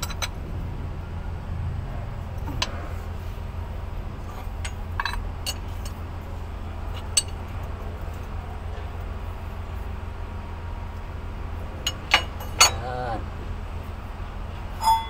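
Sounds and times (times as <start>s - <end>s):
steady low hum: 0.0s - 15.0s
metal tools clinking: 4.3s - 6.0s, 11.8s - 13.0s.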